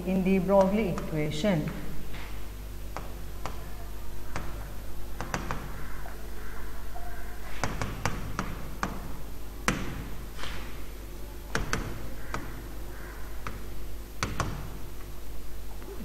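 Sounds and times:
low electrical hum: 0:00.0 - 0:16.0
stylus tapping on tablet: 0:02.9 - 0:03.7, 0:04.3 - 0:05.8.

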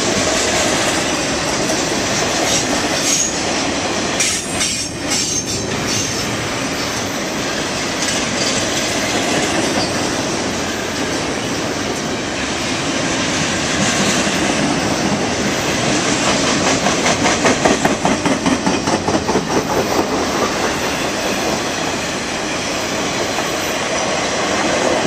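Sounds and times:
train wheels rumbling on rail: 0:00.0 - 0:25.0
wheels clickety-clack: 0:07.8 - 0:11.3, 0:13.2 - 0:22.0.

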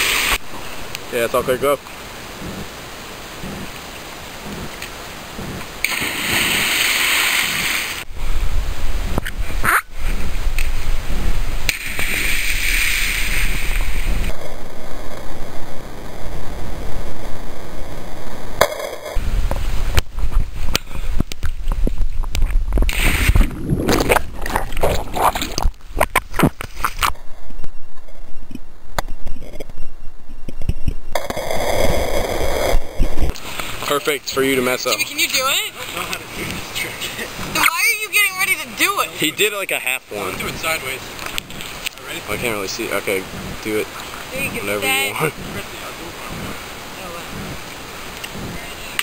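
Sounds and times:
rush of water: 0:00.0 - 0:14.6, 0:31.2 - 0:49.0
water splashing and bubbling: 0:02.2 - 0:08.2, 0:09.1 - 0:14.8
wind rumble on microphone: 0:02.4 - 0:02.7, 0:03.4 - 0:06.4, 0:07.5 - 0:33.4, 0:43.2 - 0:49.0
person splashing into water: 0:05.8 - 0:08.0.

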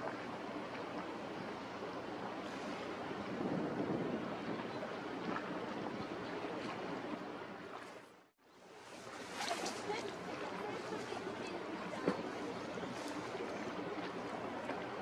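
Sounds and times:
wind on microphone: 0:00.0 - 0:07.3
lapping water: 0:09.0 - 0:15.0.

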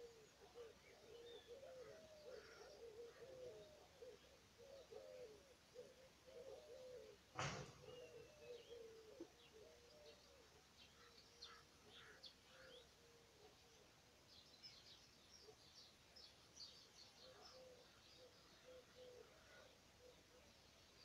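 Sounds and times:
dove cooing: 0:00.0 - 0:10.5, 0:17.2 - 0:20.5
songbirds chirping: 0:00.0 - 0:21.0.

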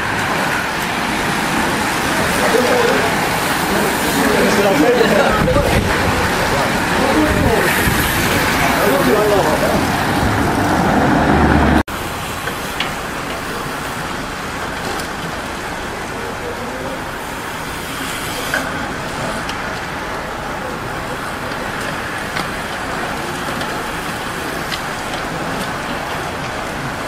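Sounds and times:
bicycles rushing past: 0:00.0 - 0:12.7.

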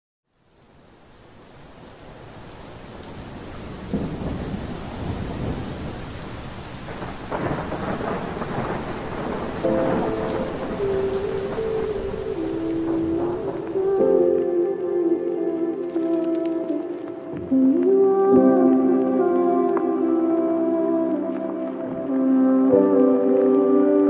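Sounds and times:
heavy rain: 0:00.3 - 0:24.0
thunder rolling: 0:03.3 - 0:14.2.

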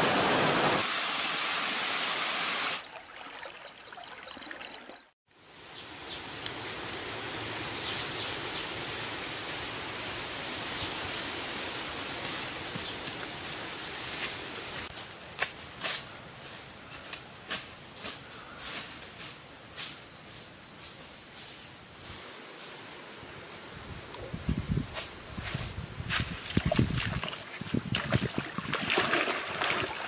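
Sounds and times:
footsteps in dry leaves: 0:11.1 - 0:20.0.

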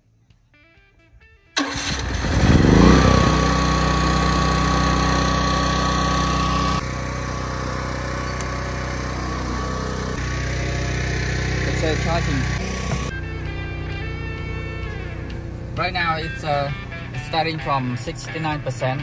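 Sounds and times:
generator starting and running: 0:01.6 - 0:18.1.

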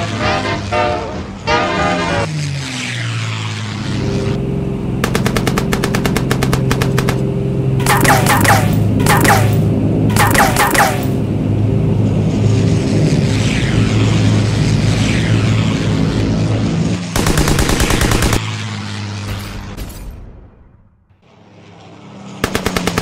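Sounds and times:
propeller engine drone: 0:00.0 - 0:23.0
machine-gun fire: 0:05.0 - 0:11.1, 0:17.2 - 0:18.4, 0:22.4 - 0:23.0.

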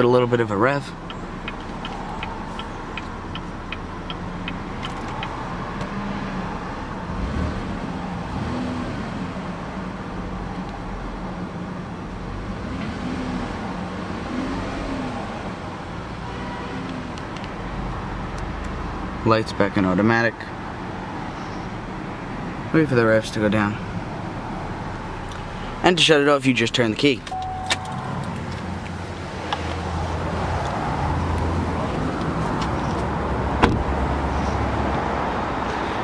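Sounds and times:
car engine idling and revving: 0:00.0 - 0:36.0
light ticking: 0:01.0 - 0:05.4.

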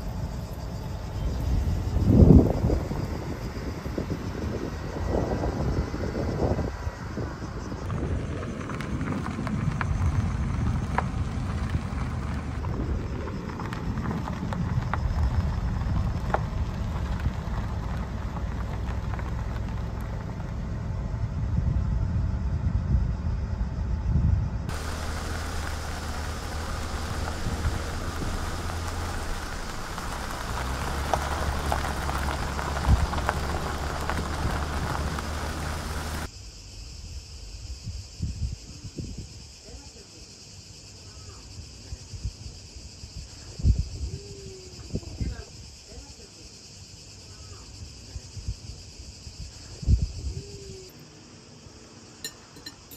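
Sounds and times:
car engine and tyre rumble: 0:00.0 - 0:36.8
steady hiss: 0:24.7 - 0:39.6.

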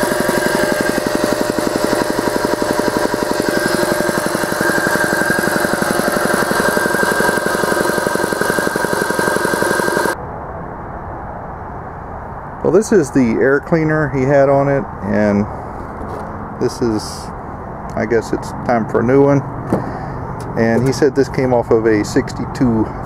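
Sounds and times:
air compressor chugging: 0:00.0 - 0:10.2
higher whine: 0:00.0 - 0:10.8.

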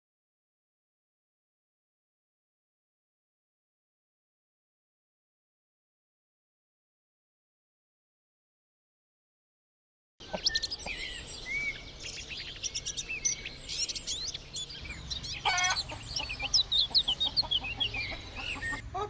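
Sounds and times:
birds chirping: 0:10.2 - 0:19.0
harsh bird call: 0:10.2 - 0:19.0.

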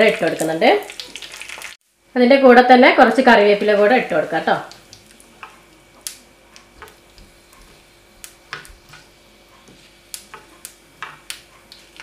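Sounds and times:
seeds clicking in hot oil: 0:00.0 - 0:01.8, 0:04.6 - 0:09.1, 0:10.0 - 0:12.0.

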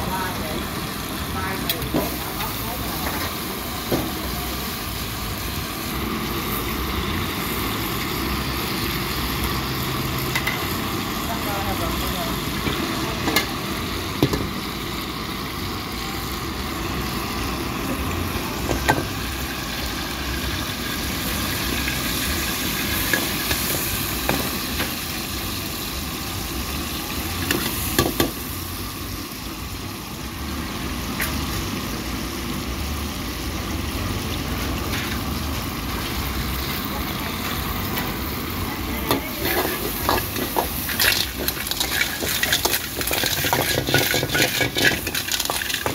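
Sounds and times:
oil sizzling in a wok: 0:00.0 - 0:45.9
utensils clinking on pan: 0:39.0 - 0:45.9.

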